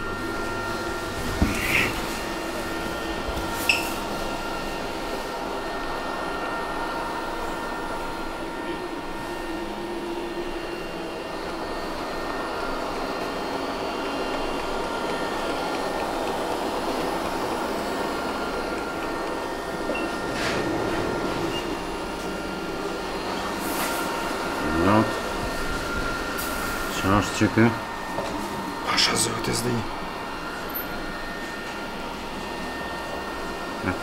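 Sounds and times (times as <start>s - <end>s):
robot vacuum motor hum: 0.0s - 4.9s.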